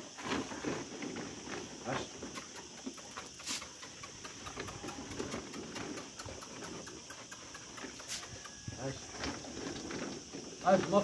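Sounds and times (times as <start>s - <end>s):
dogs crunching dry kibble: 0.2s - 10.8s
kibble clicking on concrete: 2.2s - 8.8s.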